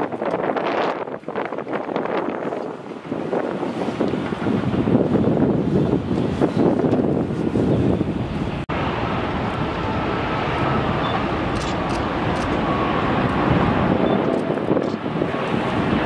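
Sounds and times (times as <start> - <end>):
jet airliner engine rumble: 0.0 - 16.0
wind on microphone: 0.0 - 16.0
faint jet engine whine: 0.4 - 16.0.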